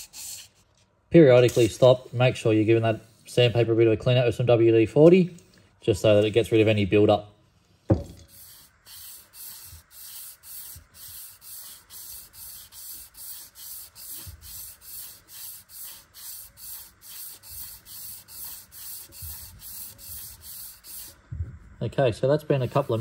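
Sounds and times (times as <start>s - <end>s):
sandpaper rubbing on steel rod: 0.0s - 0.6s, 8.3s - 21.2s, 22.5s - 23.0s.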